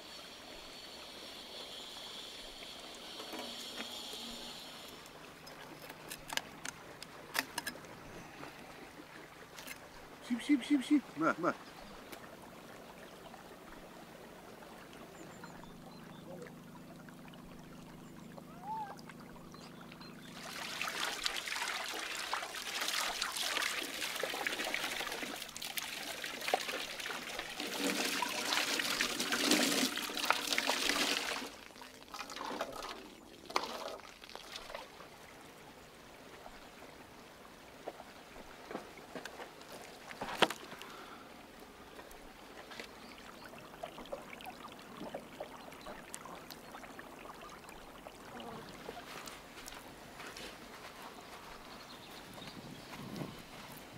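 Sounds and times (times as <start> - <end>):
hose water splashing: 20.3 - 35.1.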